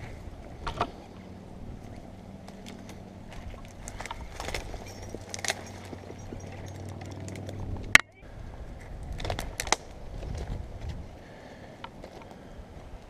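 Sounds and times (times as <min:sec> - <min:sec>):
dead branches rustling and cracking: 0:00.0 - 0:08.0, 0:08.6 - 0:13.0
steady low hum: 0:00.0 - 0:13.0
metal rigging hardware clinking: 0:02.5 - 0:08.1.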